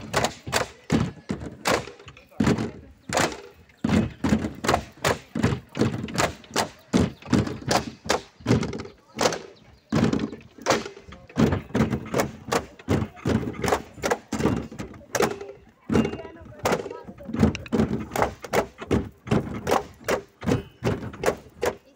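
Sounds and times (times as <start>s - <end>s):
bamboo poles knocking together: 0.0s - 21.9s.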